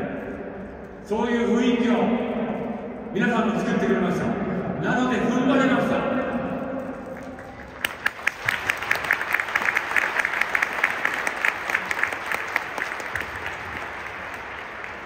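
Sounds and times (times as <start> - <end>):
sharp nearby claps: 7.0 - 15.0
crowd applauding: 7.1 - 15.0.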